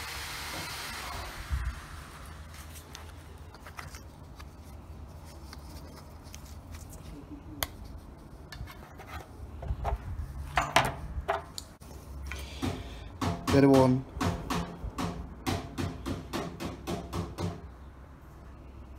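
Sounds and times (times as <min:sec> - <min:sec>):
thread-seal tape rubbing and crinkling: 0:02.0 - 0:09.4.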